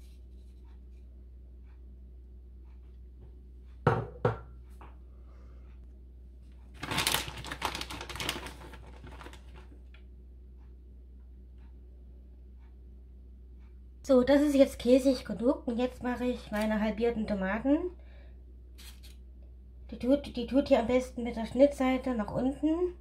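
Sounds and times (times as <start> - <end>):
steady low hum: 0.0 - 23.0
crinkly rustling of cheese: 6.6 - 10.0.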